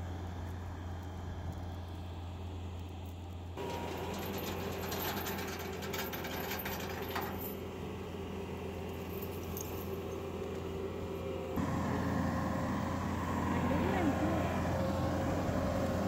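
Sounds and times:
diesel engine running: 0:00.0 - 0:16.0
metallic rattling clatter: 0:03.6 - 0:07.6.

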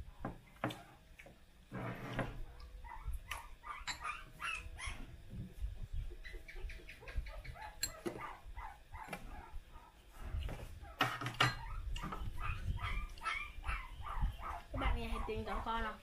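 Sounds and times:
animal whining: 0:02.5 - 0:05.2, 0:06.2 - 0:15.8
utensils clinking on bowls: 0:03.8 - 0:04.2.

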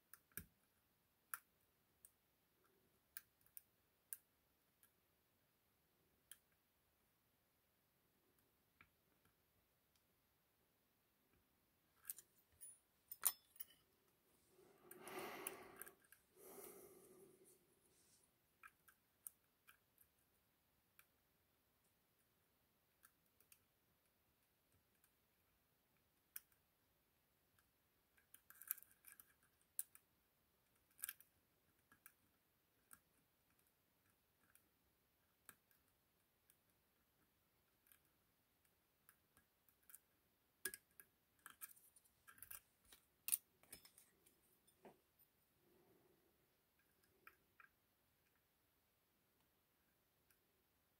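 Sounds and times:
lock pick clicking and scraping: 0:12.0 - 0:13.9.

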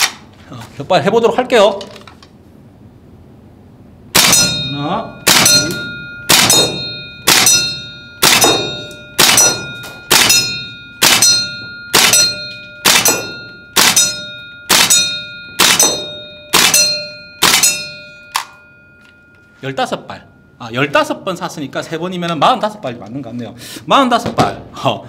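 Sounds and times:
airsoft shotgun firing: 0:04.2 - 0:04.5, 0:05.3 - 0:05.6, 0:06.3 - 0:07.5, 0:08.2 - 0:10.4, 0:11.0 - 0:11.3, 0:12.0 - 0:12.2, 0:12.8 - 0:14.0, 0:14.7 - 0:15.0, 0:15.6 - 0:16.8, 0:17.4 - 0:17.8.

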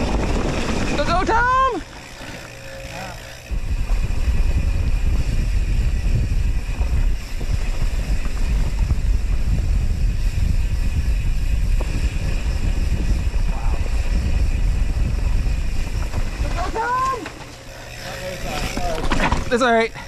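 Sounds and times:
wind buffeting microphone: 0:00.0 - 0:01.9, 0:03.5 - 0:17.3.

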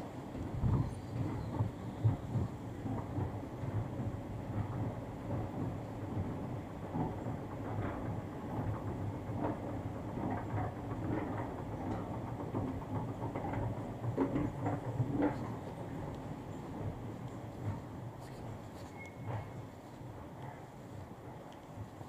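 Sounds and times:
escalator steps clicking and rattling: 0:00.2 - 0:22.0.

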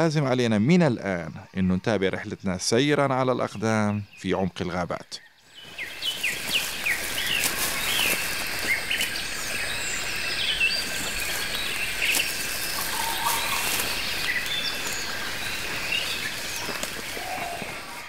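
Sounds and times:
bird calls and chirps: 0:01.1 - 0:18.0
high-pitched insect drone: 0:06.7 - 0:18.0.

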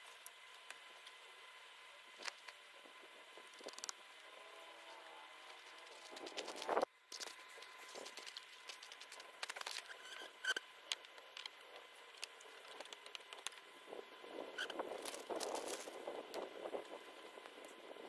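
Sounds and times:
small clicks and taps: 0:10.8 - 0:13.6.

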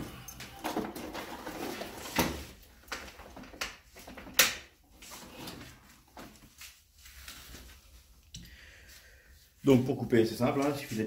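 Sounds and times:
handling knocks and rustles: 0:00.0 - 0:08.1.

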